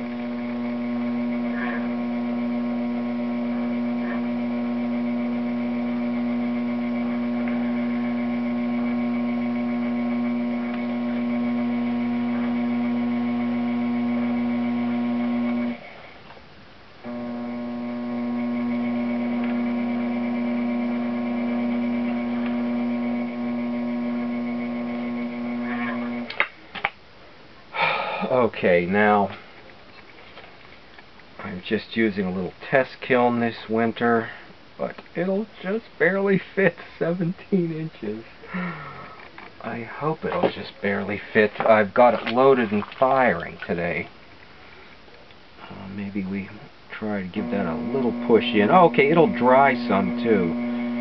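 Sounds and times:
potter's wheel motor humming: 0:00.0 - 0:16.0, 0:17.0 - 0:26.4, 0:47.2 - 0:51.0.

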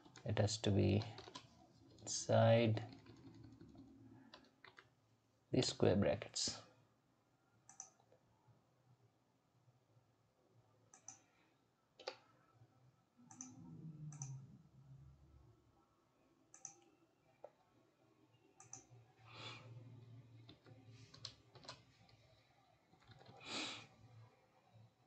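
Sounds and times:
mouse and keyboard clicks: 0:00.9 - 0:02.0, 0:07.7 - 0:08.1, 0:18.6 - 0:18.9.

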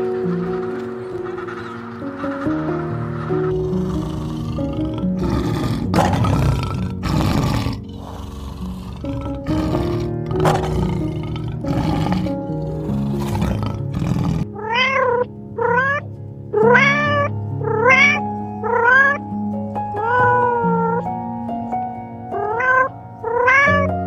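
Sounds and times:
lion roaring: 0:00.0 - 0:14.5
kitten meowing: 0:14.6 - 0:16.0, 0:16.6 - 0:19.2, 0:20.0 - 0:21.0, 0:22.4 - 0:23.9.

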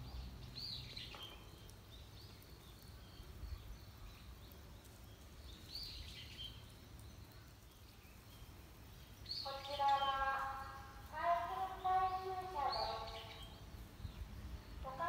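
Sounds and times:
small bird chirping: 0:00.0 - 0:15.0.

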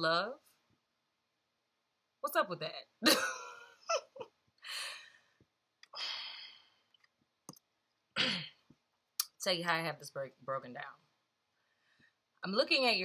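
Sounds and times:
woman sighing heavily: 0:04.7 - 0:05.2, 0:06.0 - 0:06.7.

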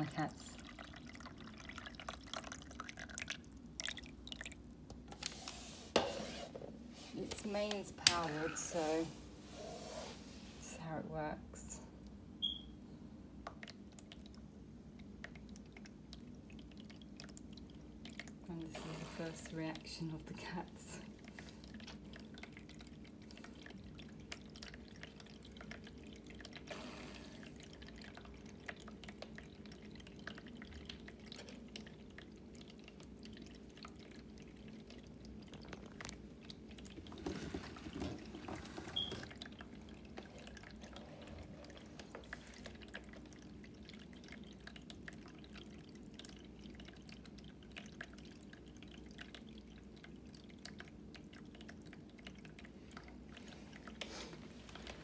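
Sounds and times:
water trickling and dripping: 0:00.0 - 0:05.4, 0:07.0 - 0:09.2, 0:13.4 - 0:55.0
pump humming: 0:17.1 - 0:35.6, 0:36.3 - 0:55.0.

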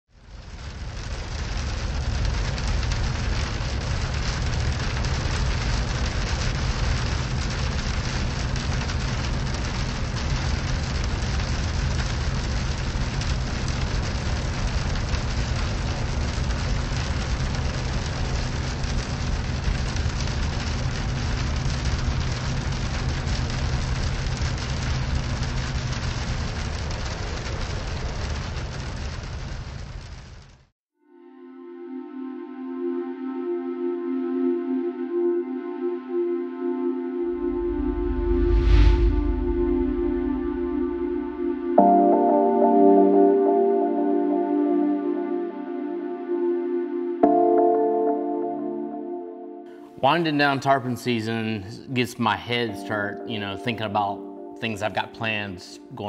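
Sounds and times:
rain on car windshield: 0:00.1 - 0:30.7.

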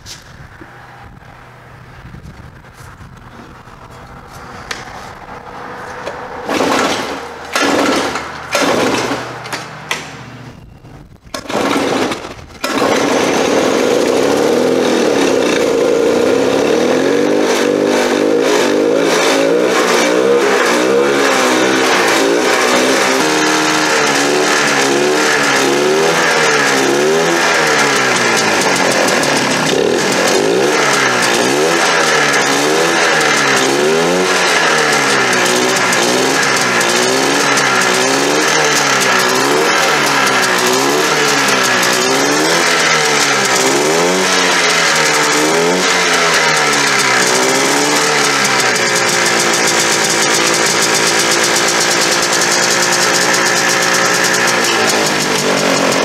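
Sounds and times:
engine revving: 0:00.0 - 0:56.0
engine cranking and starting: 0:03.3 - 0:56.0.

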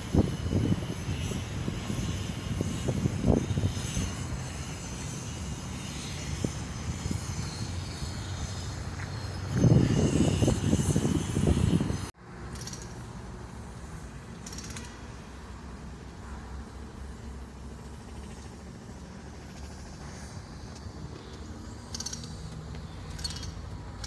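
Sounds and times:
wind buffeting microphone: 0:00.0 - 0:12.1
steady outdoor noise: 0:00.0 - 0:24.0
vehicle road and engine noise: 0:00.0 - 0:24.0.

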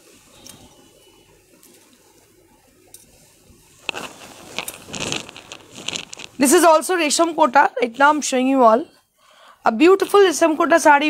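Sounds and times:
silk fabric rustling: 0:03.2 - 0:07.1.

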